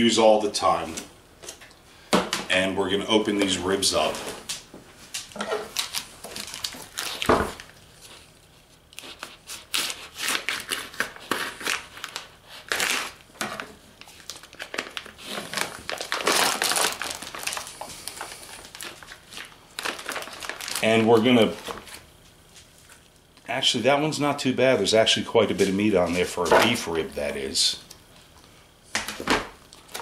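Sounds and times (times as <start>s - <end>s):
plastic packaging crinkling: 5.2s - 23.3s, 29.1s - 30.0s.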